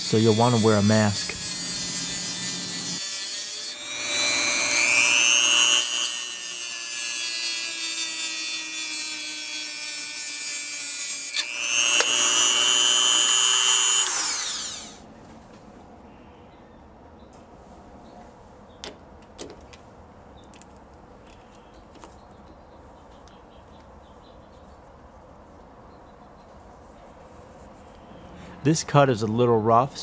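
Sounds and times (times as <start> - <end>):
rotary tool grinding glass: 0.0 - 10.0, 11.0 - 15.0.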